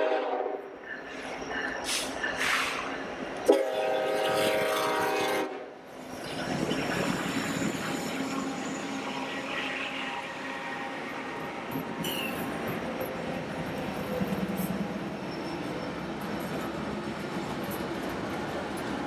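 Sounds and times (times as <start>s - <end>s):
locomotive air horn blasting: 0.0s - 0.6s, 3.5s - 5.7s.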